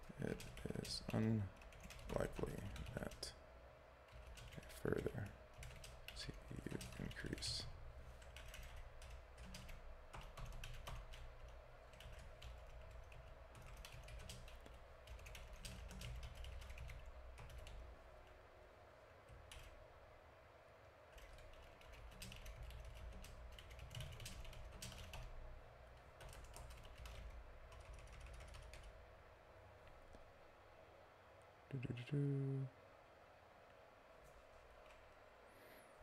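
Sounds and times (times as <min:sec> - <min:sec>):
faint low hum: 0:00.0 - 0:36.0
computer keyboard typing: 0:00.1 - 0:03.3, 0:04.1 - 0:17.8, 0:19.3 - 0:19.8, 0:21.1 - 0:25.4, 0:26.2 - 0:28.9.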